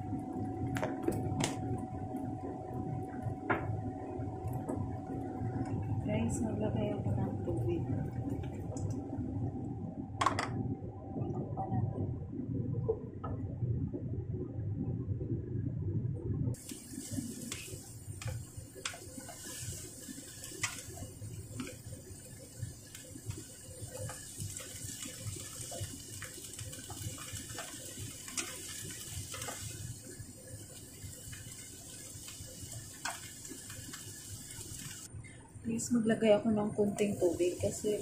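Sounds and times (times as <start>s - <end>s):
vegetables sizzling in a pan: 16.6s - 35.1s, 36.8s - 38.0s.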